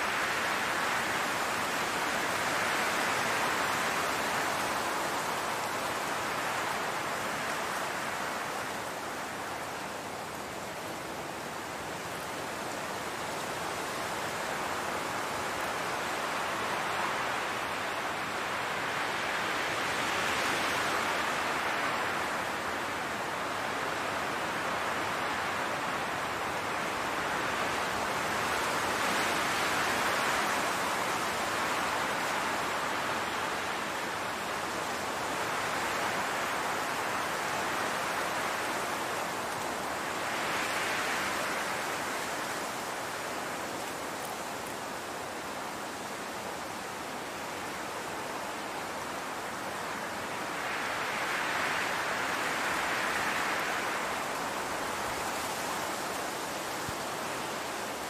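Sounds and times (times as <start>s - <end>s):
wind through tall grass: 0.0s - 58.0s.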